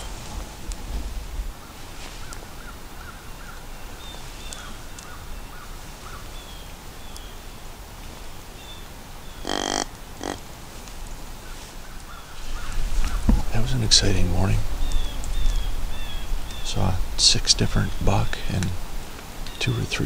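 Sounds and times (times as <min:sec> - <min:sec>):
crow cawing: 0:09.4 - 0:10.4.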